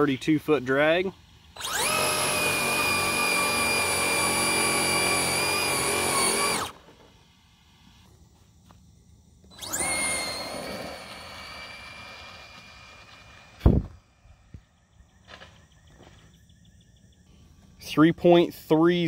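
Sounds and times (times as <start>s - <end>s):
toy car motor whining: 1.4s - 6.8s, 9.4s - 13.7s.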